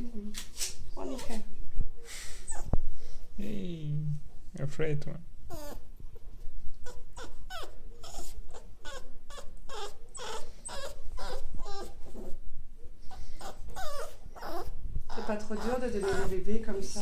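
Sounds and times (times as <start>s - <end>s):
puppy whimpering: 2.4s - 2.8s, 5.5s - 5.9s, 6.8s - 12.4s, 13.1s - 16.5s.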